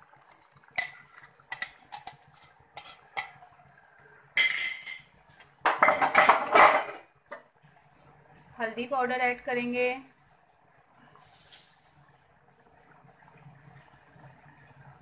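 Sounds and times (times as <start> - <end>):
utensil scraping metal pot: 0.8 - 3.4
utensils clinking on metal pot: 0.8 - 3.4, 4.4 - 7.0.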